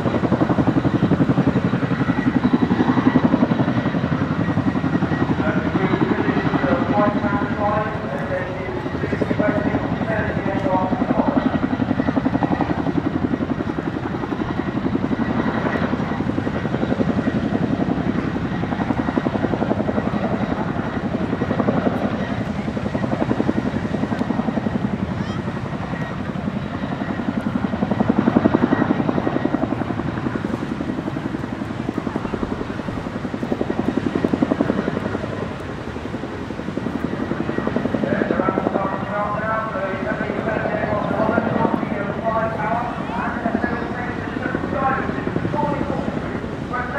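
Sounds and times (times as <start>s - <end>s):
helicopter rotors chopping: 0.0s - 46.9s.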